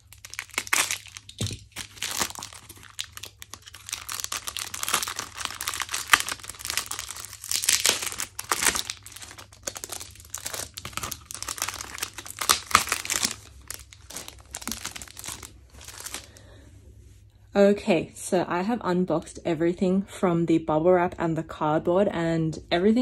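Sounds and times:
plastic wrapping crinkling: 0.0s - 16.4s.

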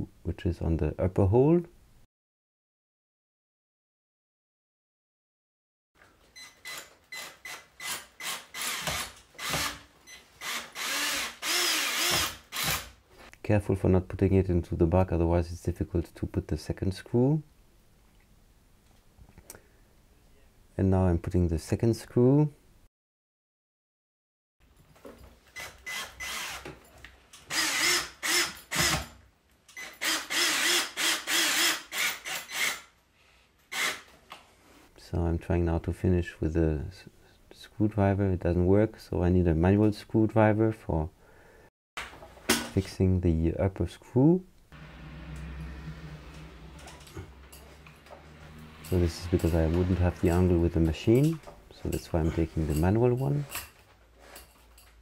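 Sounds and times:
cordless drill driving a screw: 6.4s - 13.0s, 25.5s - 26.7s, 27.4s - 29.1s, 29.7s - 32.9s, 33.7s - 34.1s.

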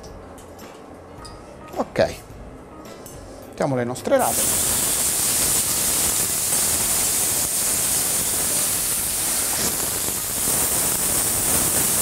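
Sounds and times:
greens sizzling in oil: 4.2s - 12.0s.

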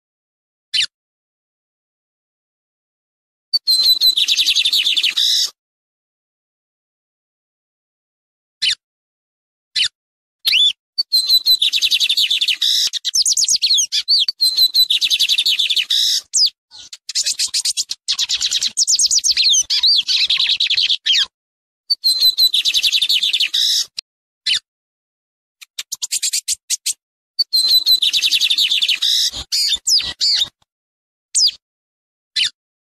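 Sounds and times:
bird singing high twittering: 3.6s - 5.5s, 10.5s - 21.3s, 21.9s - 24.6s, 25.7s - 30.5s, 31.4s - 31.6s.

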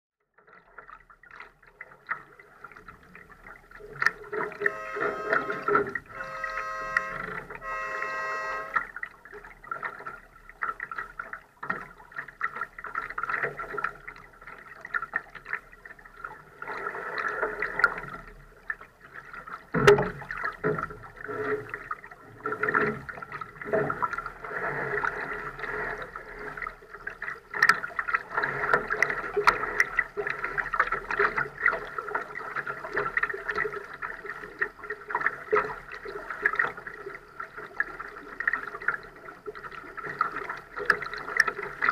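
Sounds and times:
water lapping against hull: 0.4s - 41.9s.

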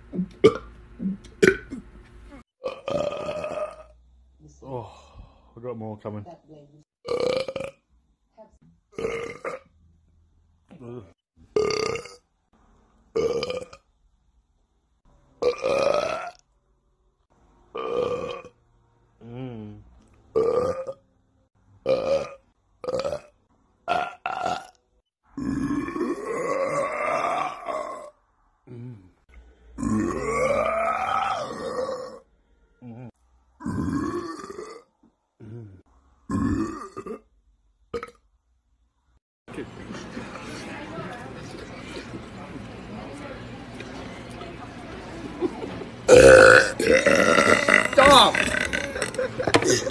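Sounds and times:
man burping loudly: 0.4s - 0.7s, 1.4s - 1.8s, 2.6s - 4.0s, 7.0s - 7.8s, 9.0s - 9.7s, 10.7s - 12.2s, 13.2s - 13.8s, 15.4s - 16.4s, 17.7s - 18.6s, 19.2s - 21.0s, 21.8s - 23.3s, 23.9s - 29.2s, 29.8s - 32.2s, 32.8s - 37.3s, 37.9s - 38.2s, 46.1s - 49.9s.

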